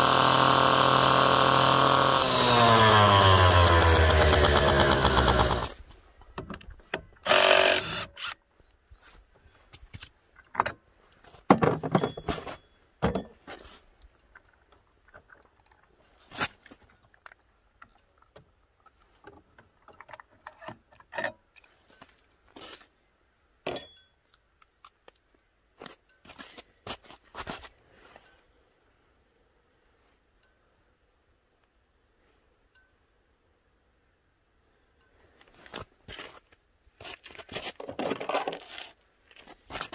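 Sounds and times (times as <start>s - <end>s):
scooter engine running: 3.4s - 5.8s.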